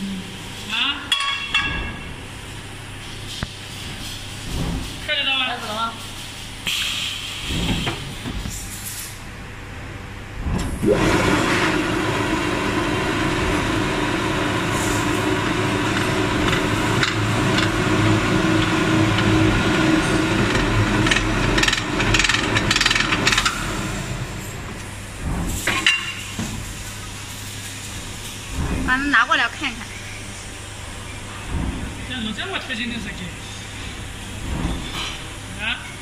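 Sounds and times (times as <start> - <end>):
machine humming: 9.4 - 36.0.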